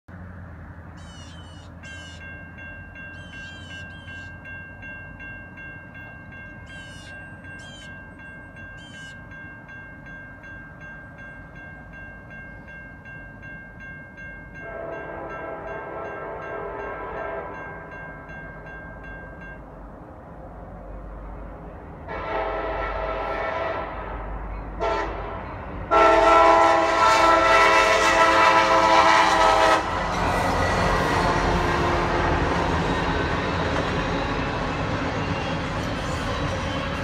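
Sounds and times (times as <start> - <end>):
railroad crossing bell ringing: 0.9 - 23.5, 24.2 - 37.0
locomotive air horn: 14.6 - 17.7, 22.1 - 24.2, 24.8 - 33.3.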